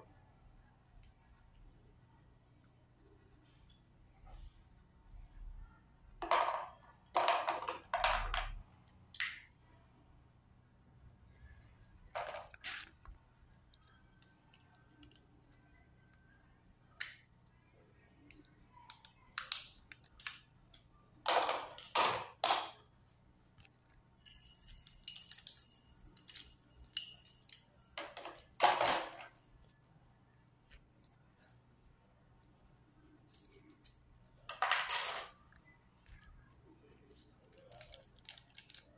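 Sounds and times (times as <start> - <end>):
stationery clattering: 6.2 - 8.6, 21.2 - 22.8, 24.2 - 29.7, 33.3 - 35.4.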